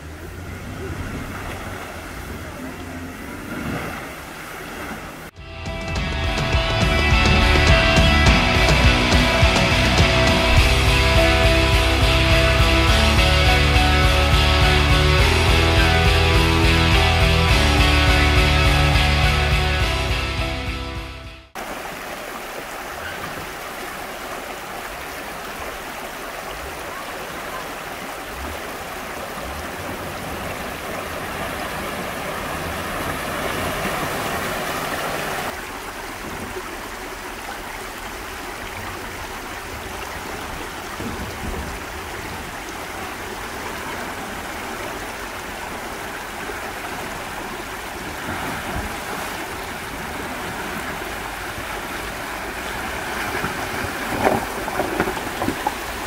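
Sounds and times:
stream water rushing over rocks: 21.5s - 56.0s.

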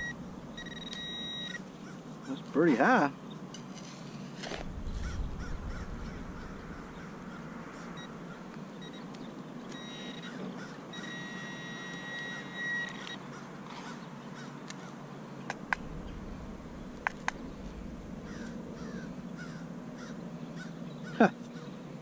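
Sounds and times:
metal detector beeping: 0.0s - 1.6s, 8.8s - 9.1s, 9.7s - 13.2s.

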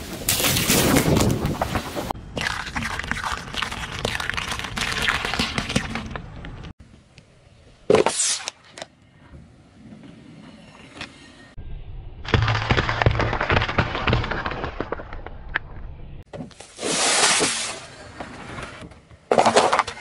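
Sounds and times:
eggshells cracking under car tyre: 12.3s - 15.6s.

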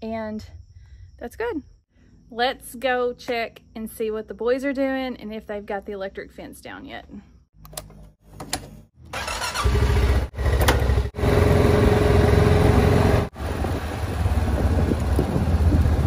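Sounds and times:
quad bike engine running: 9.2s - 16.0s.

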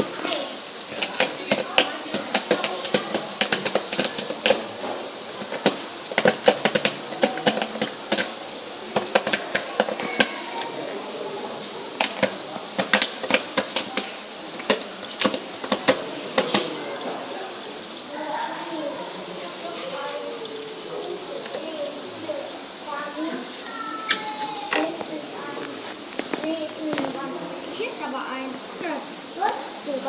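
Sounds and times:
claws scratching bark and soil: 0.0s - 10.8s
faint voices murmuring: 0.0s - 30.0s.

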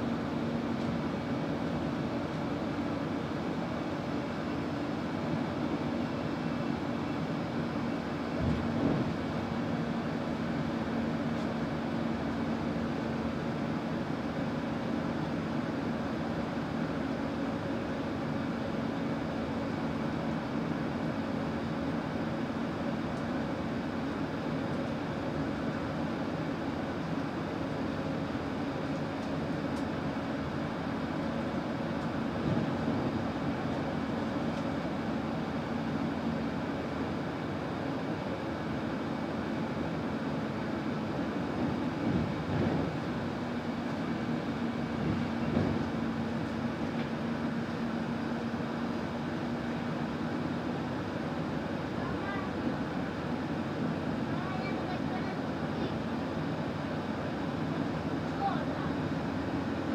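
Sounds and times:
bus drivetrain hum: 0.0s - 59.9s
bus bump: 42.0s - 43.0s, 45.0s - 46.0s.

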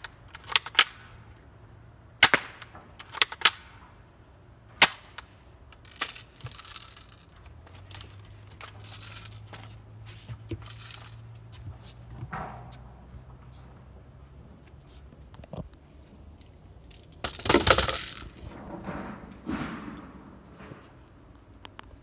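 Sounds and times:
airsoft gun shots: 2.2s - 3.8s, 4.8s - 5.2s.

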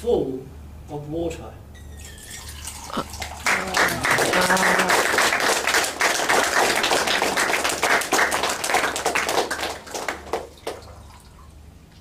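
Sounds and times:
water poured between bowls: 2.0s - 5.0s, 10.4s - 12.0s
audience applauding: 3.1s - 10.9s.

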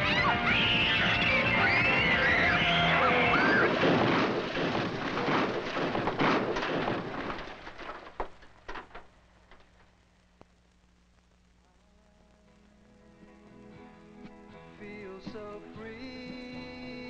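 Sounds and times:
car crashing and tumbling: 1.8s - 9.9s
falling debris clattering: 1.8s - 10.0s.

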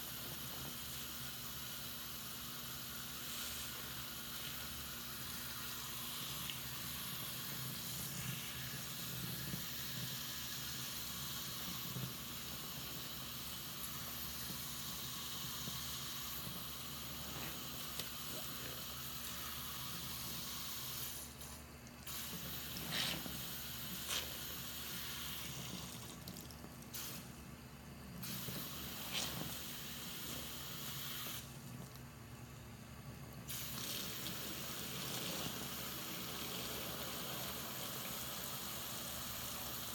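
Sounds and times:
sponge squelching in water: 22.5s - 24.6s
tap water running into sink: 33.7s - 39.8s.

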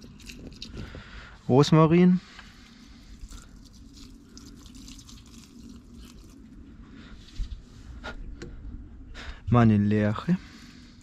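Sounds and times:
water trickling onto soil: 0.0s - 0.9s, 2.4s - 6.6s.

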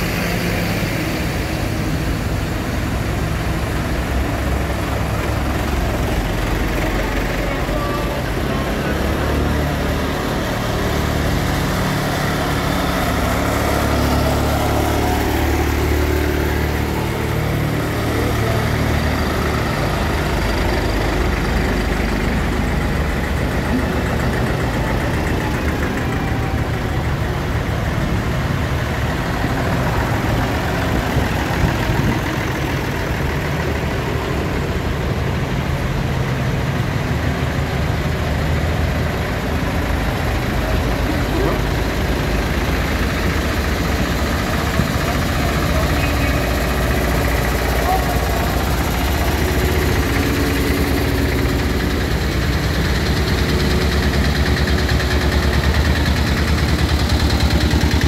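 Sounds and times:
tractor engines driving past: 0.0s - 58.0s.

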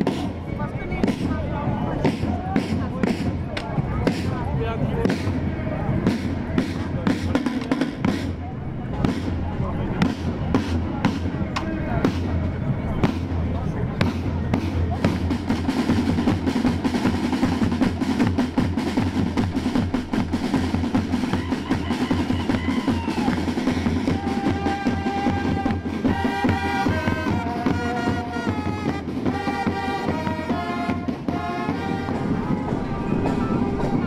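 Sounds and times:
snare and bass drums cadence: 2.0s - 5.4s, 6.0s - 8.4s, 10.0s - 34.0s
fanfare trumpets melody: 23.6s - 34.0s.

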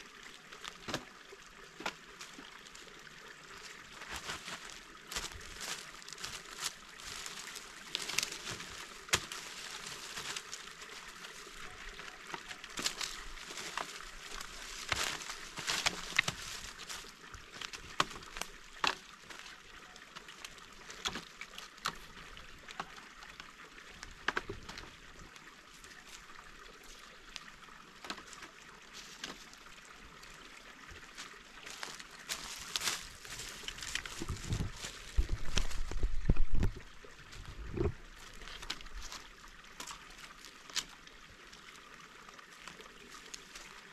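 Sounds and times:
dry leaves crunching underfoot: 3.5s - 21.3s, 31.1s - 41.0s
dead branches rustling and knocking: 4.0s - 19.5s, 31.6s - 39.2s.

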